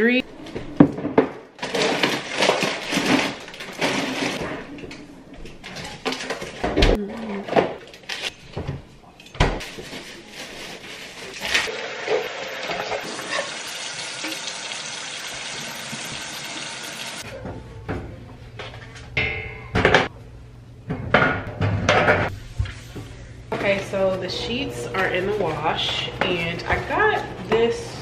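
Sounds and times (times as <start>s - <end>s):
plastic packaging crinkling: 1.6s - 4.4s.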